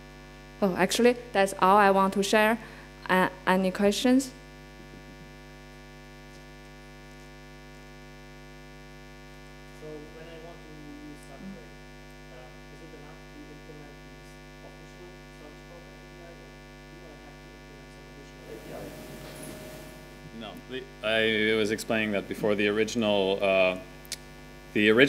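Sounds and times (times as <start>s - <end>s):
electrical mains hum: 0.0s - 25.0s
faint distant voice speaking: 9.8s - 20.8s.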